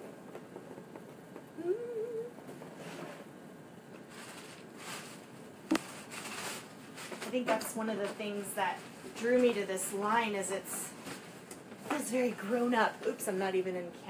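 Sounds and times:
person humming: 1.6s - 2.4s.

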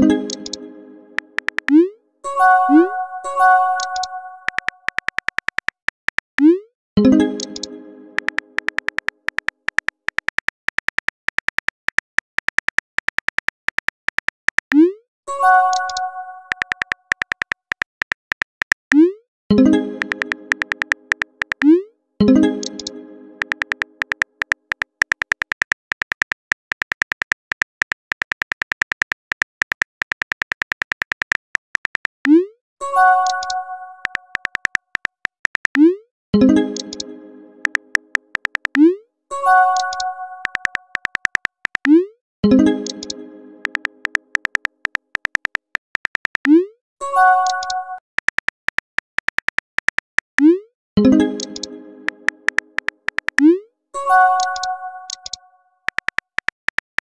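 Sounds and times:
message received chime: 0.0s - 4.7s, 42.5s - 44.2s, 51.0s - 52.8s
keyboard tap clicks: 0.3s - 0.6s, 1.2s - 1.8s, 3.8s - 6.4s, 7.4s - 14.8s, 15.7s - 19.0s, 20.0s - 21.7s, 22.6s - 32.2s, 33.2s - 35.9s, 37.6s - 38.9s, 39.8s - 42.0s, 42.8s - 46.6s, 47.4s - 50.4s, 51.4s - 53.5s, 54.4s - 57.0s.

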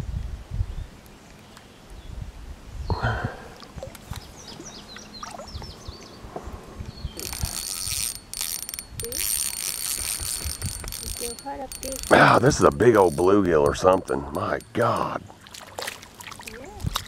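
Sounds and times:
fishing reel ratcheting: 7.2s - 15.1s.

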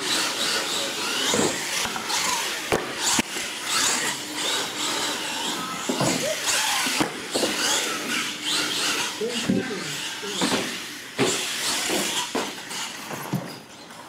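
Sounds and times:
electric motor whining: 0.0s - 13.1s.

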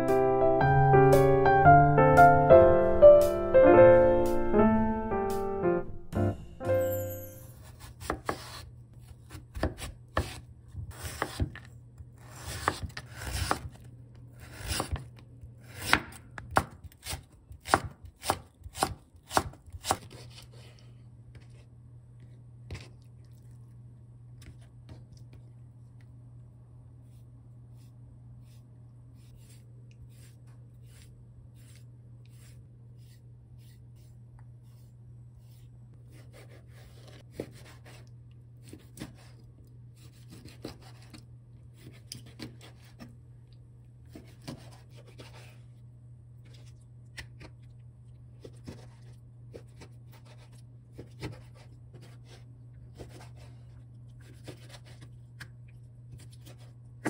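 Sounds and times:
knife scraping squid: 29.2s - 39.4s.

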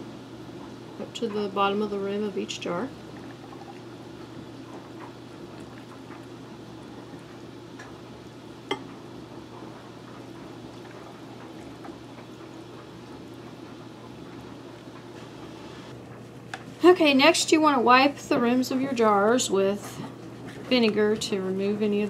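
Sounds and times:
broth pouring into jars: 3.1s - 4.0s.

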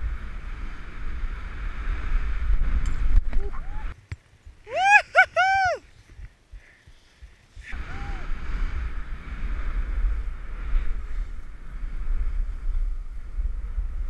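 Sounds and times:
wind buffeting microphone: 0.0s - 14.0s
skis hissing through snow: 6.6s - 14.0s.

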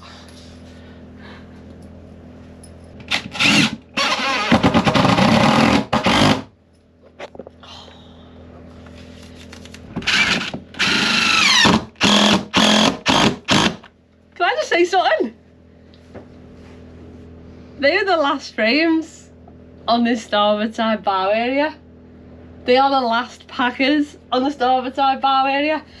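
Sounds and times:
cordless drill driving screws: 3.0s - 6.5s, 10.0s - 13.9s.

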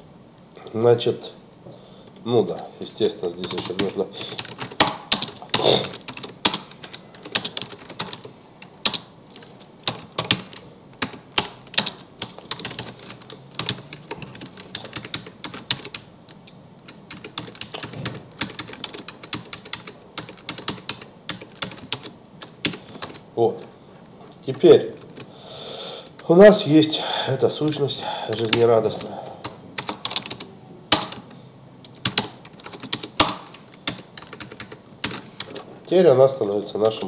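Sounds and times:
keyboard key clicks: 32.8s - 33.5s.

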